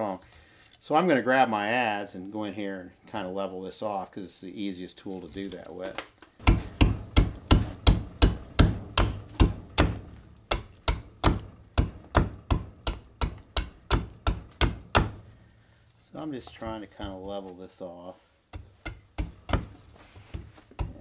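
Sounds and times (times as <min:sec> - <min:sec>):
adze chopping into wood: 0:06.4 - 0:15.2, 0:18.6 - 0:19.7.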